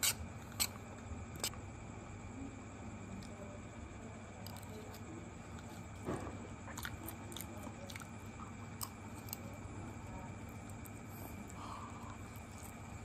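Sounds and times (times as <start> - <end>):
steady low hum: 0.0 - 13.0
person chewing food: 4.5 - 9.5.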